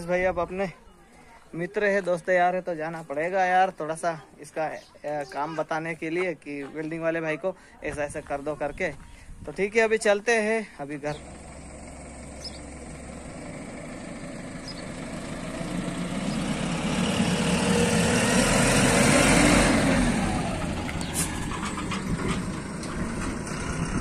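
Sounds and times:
truck diesel engine passing: 10.9 - 24.0.

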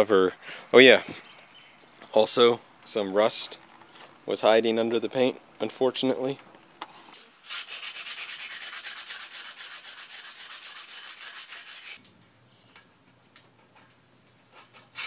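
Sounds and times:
sanding metal tube: 7.4 - 12.0.

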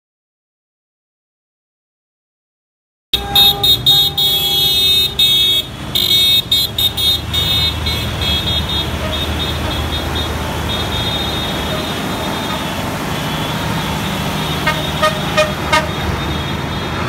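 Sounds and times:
tractor diesel engine running: 3.2 - 17.0
vehicle horns honking: 3.2 - 17.0.

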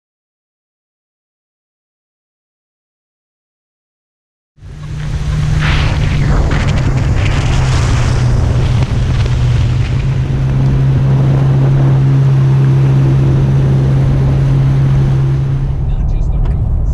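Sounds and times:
motorboat engine running: 4.6 - 16.9
water rushing past: 4.6 - 16.9
wind on microphone: 4.6 - 16.9.

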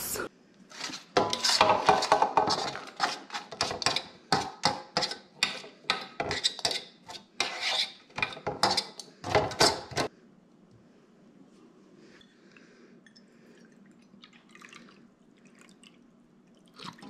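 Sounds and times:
utensil scraping a metal pan: 0.7 - 10.1.

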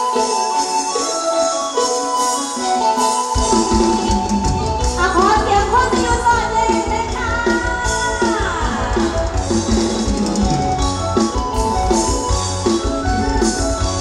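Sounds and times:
amplified folk band music: 0.0 - 14.0
steady drum beat: 3.4 - 14.0.

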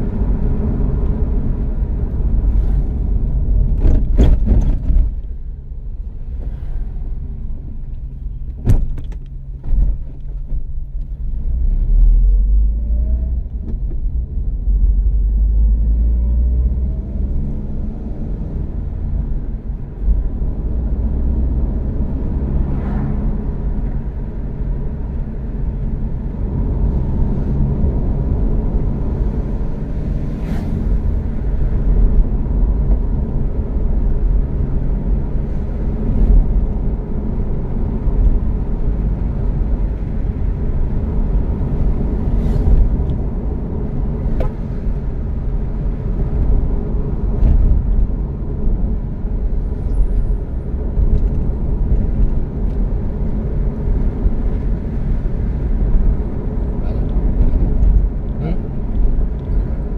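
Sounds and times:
road and engine noise in car: 0.0 - 59.9.

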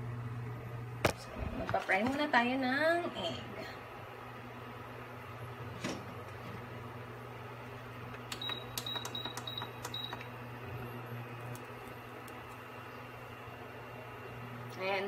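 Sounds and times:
steady low hum: 0.0 - 15.0
cooktop buttons beeping: 8.3 - 10.3.

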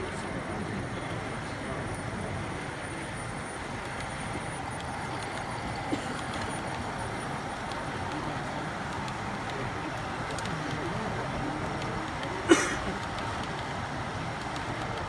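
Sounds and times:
hubbub of exhibition crowd: 0.0 - 15.0
faint clicks: 7.6 - 10.9, 11.6 - 15.0.

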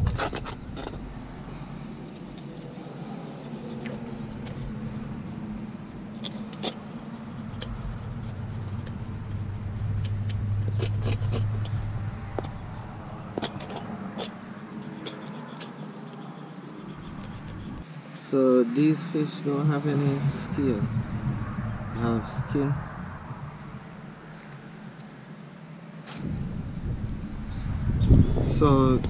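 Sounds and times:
knife scraping fish skin on concrete: 0.0 - 1.2, 7.4 - 11.8, 13.4 - 17.8
low vehicle engine rumble: 0.0 - 25.4, 26.0 - 29.0.

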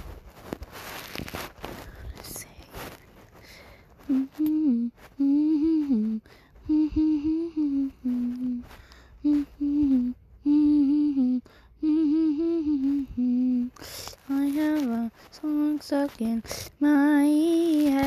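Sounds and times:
person humming: 4.0 - 18.0.

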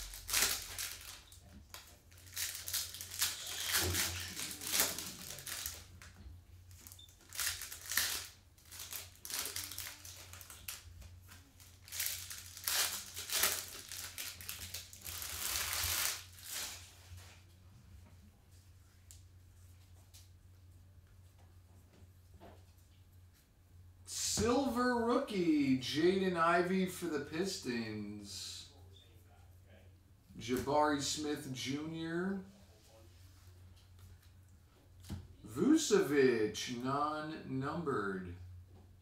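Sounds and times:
card pack wrappers crinkling: 0.0 - 6.1, 6.7 - 16.9.

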